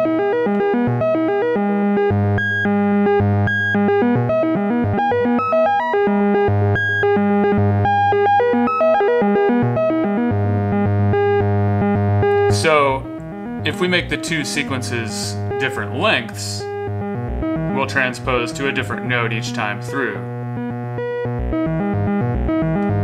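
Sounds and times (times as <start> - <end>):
sequenced synth melody: 0.0 - 23.0.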